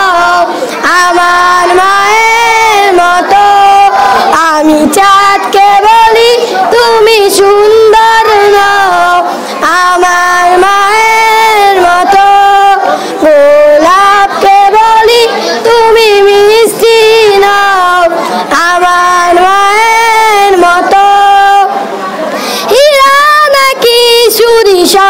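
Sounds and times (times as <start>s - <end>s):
boy singing unaccompanied: 0.0s - 21.8s, 22.6s - 25.0s
short breaths: 9.3s - 9.6s, 12.9s - 13.2s, 22.0s - 22.7s.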